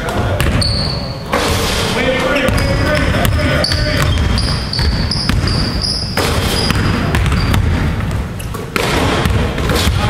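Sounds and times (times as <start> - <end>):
sneaker squeaks: 0.4 - 1.6, 2.5 - 8.8
basketball bouncing on wooden floor: 2.4 - 10.0.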